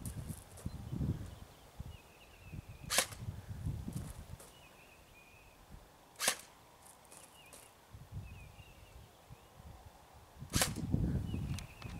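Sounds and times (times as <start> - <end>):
airsoft rifle shot: 2.9 - 3.2, 6.2 - 6.5, 10.5 - 10.9.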